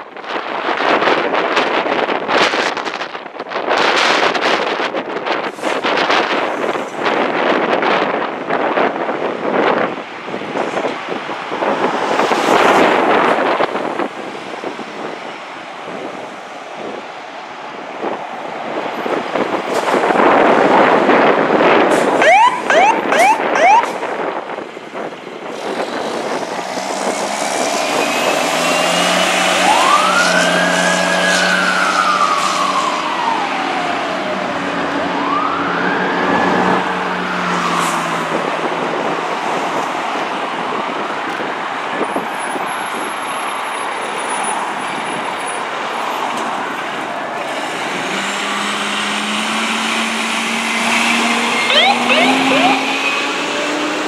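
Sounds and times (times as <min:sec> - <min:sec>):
fire engine siren wailing: 0:20.2 - 0:24.4, 0:27.0 - 0:39.1, 0:48.0 - 0:54.0.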